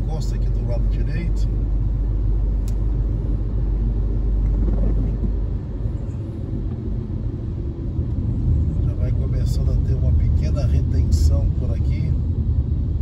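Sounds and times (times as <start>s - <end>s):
sharp click: 2.6s - 2.8s.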